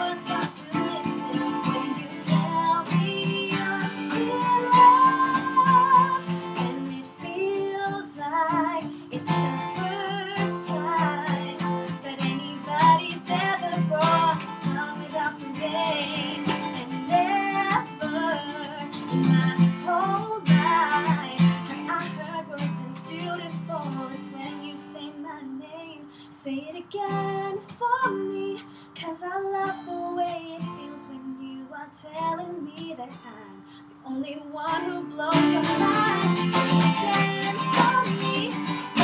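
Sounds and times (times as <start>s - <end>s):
egg shaker rattle: 0.0s - 7.0s, 35.9s - 39.0s
strummed acoustic guitar: 0.0s - 26.4s, 34.7s - 39.0s
woman singing pop ballad: 0.0s - 39.0s.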